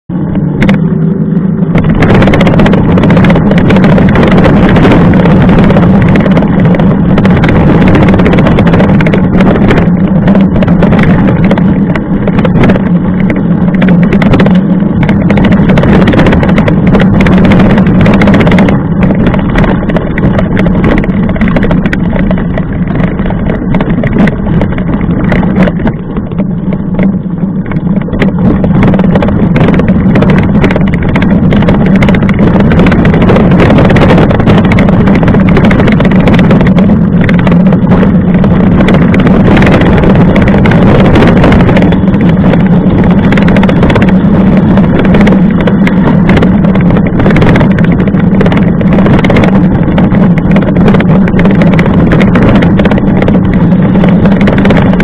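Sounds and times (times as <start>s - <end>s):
bike rolling over gravel: 0.4s - 55.0s
rattling and clicking from bumps: 1.6s - 55.0s.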